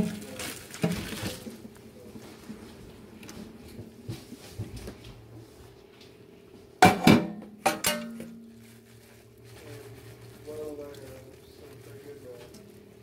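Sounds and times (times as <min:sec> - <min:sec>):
metal cookware clanking in sink: 0:06.8 - 0:08.4.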